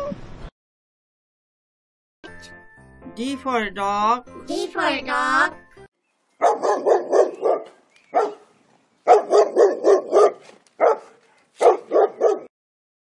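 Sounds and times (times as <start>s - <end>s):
dog barking: 6.4s - 12.5s.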